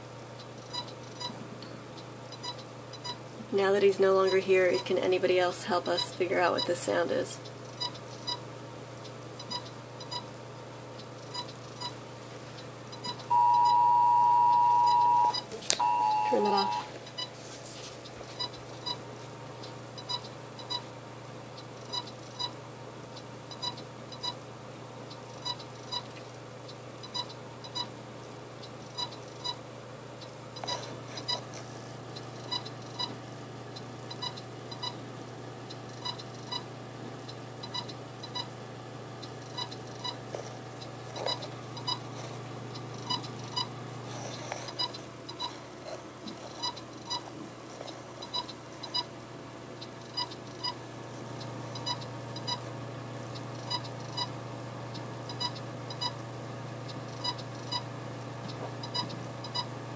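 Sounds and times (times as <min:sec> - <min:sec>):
steady low hum: 0:00.0 - 0:59.9
computer short high beeps: 0:13.3 - 0:16.9.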